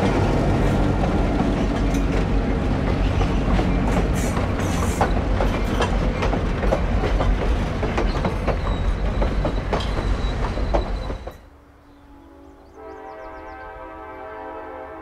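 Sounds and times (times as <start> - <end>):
wheels clacking over rail joints: 0.0 - 11.5
passenger train rumbling past: 0.0 - 15.0.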